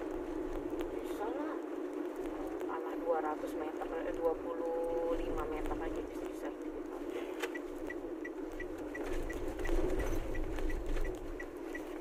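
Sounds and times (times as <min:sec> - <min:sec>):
car road and engine noise: 0:00.0 - 0:12.0
light even ticking: 0:04.0 - 0:12.0.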